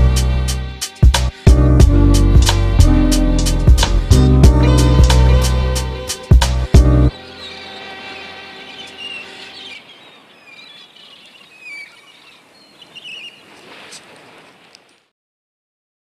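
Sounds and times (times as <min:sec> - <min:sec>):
held closing chord: 0:00.0 - 0:10.4
faint bird-like chirps: 0:07.1 - 0:14.2.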